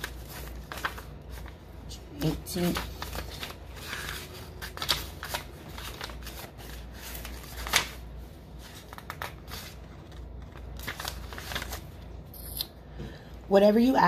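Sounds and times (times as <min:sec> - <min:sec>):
paper rustling and flicking: 0:00.0 - 0:12.0.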